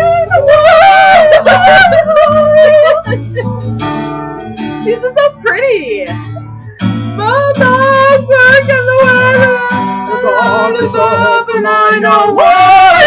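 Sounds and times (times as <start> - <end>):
women singing together: 0.0 - 3.2, 7.2 - 13.0
strummed acoustic guitar: 0.0 - 13.0.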